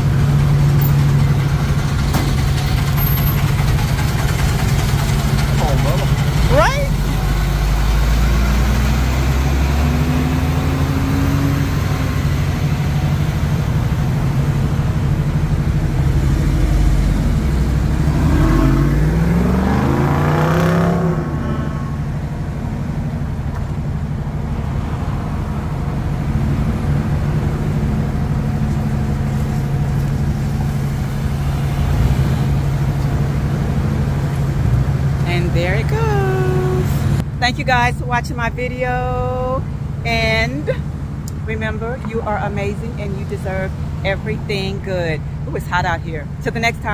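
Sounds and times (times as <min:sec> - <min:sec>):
vehicle engines idling: 0:00.0 - 0:20.0, 0:21.2 - 0:46.9
engine revving: 0:00.0 - 0:22.9.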